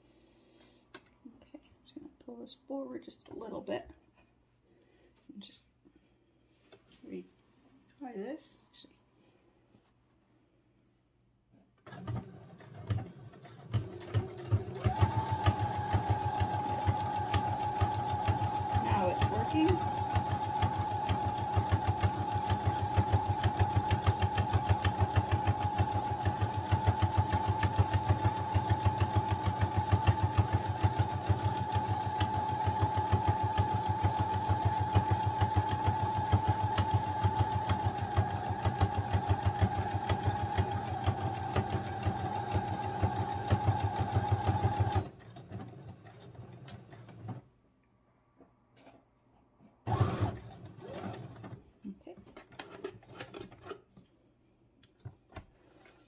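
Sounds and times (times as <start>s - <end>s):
sewing machine motor whine: 11.9s - 47.4s, 49.9s - 51.6s.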